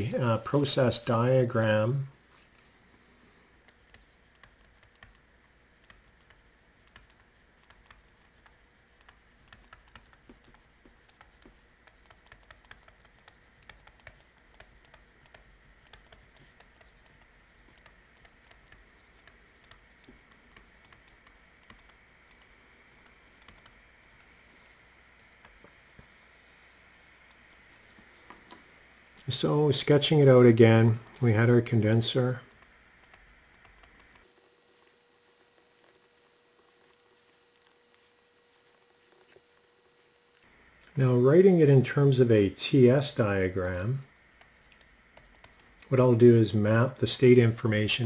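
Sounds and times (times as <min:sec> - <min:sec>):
stylus tapping on tablet screen: 0:05.8 - 0:24.7.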